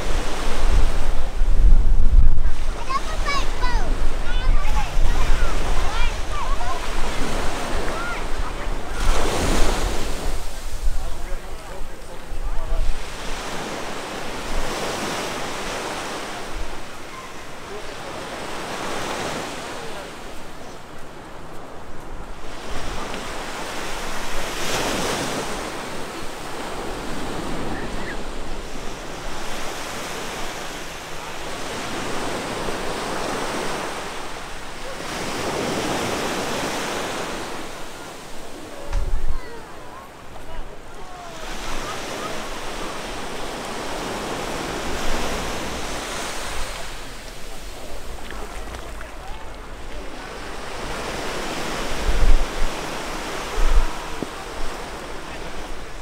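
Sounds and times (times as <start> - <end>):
wind on microphone: 0.0 - 17.5, 41.4 - 56.0
ocean surf washing ashore: 0.0 - 56.0.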